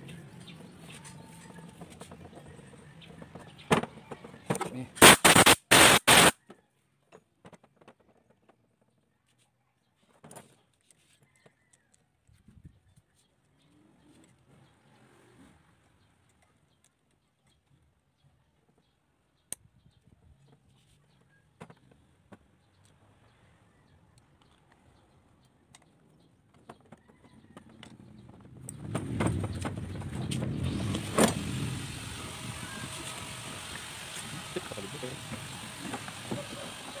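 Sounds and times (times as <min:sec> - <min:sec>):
motor vehicle running: 0:00.0 - 0:05.0, 0:21.7 - 0:37.0.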